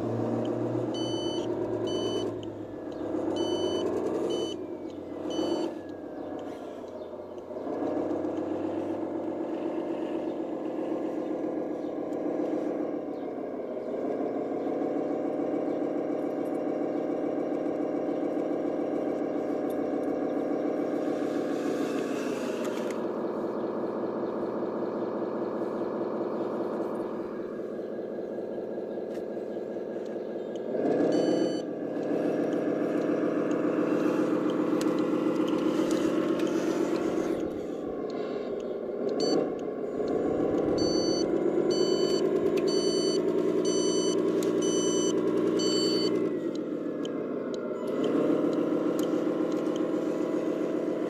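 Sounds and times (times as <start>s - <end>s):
simulated truck engine revving: 0.0s - 51.0s
high beeps: 0.9s - 2.4s, 3.3s - 4.6s, 5.3s - 5.8s, 31.1s - 31.7s, 39.2s - 39.4s, 40.7s - 46.2s.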